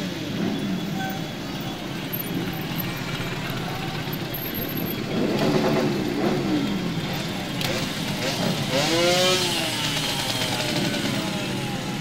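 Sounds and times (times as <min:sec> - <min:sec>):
motorcycles riding slowly past: 0:00.0 - 0:12.0.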